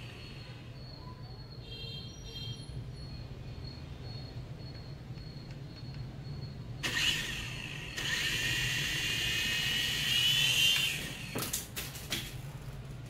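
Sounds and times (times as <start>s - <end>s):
toy helicopter motors whining: 6.8s - 11.6s.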